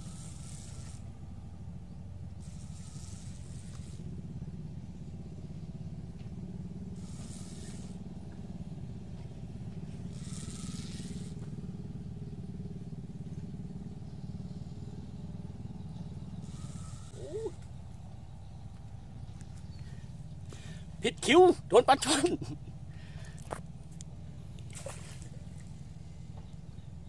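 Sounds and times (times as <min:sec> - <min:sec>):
fishing reel drag whirring: 0:00.0 - 0:04.6, 0:06.8 - 0:08.6, 0:09.7 - 0:12.1, 0:16.1 - 0:18.6, 0:23.2 - 0:26.6
small engine droning: 0:00.0 - 0:27.0.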